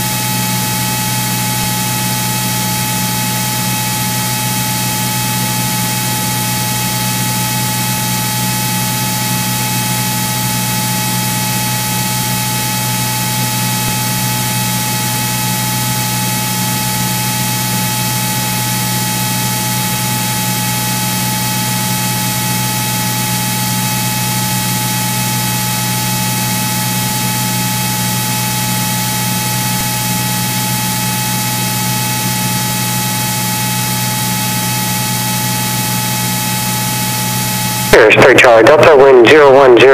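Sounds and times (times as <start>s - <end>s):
constant high whine: 0.0s - 39.9s.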